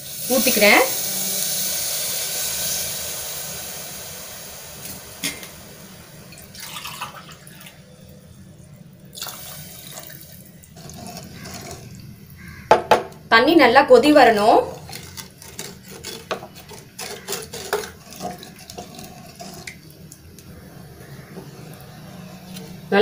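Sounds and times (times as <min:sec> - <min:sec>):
water pouring into a pot: 0:00.0 - 0:08.4, 0:09.0 - 0:12.6, 0:14.7 - 0:22.9
spatula scraping a pot: 0:10.8 - 0:11.9, 0:14.8 - 0:19.8.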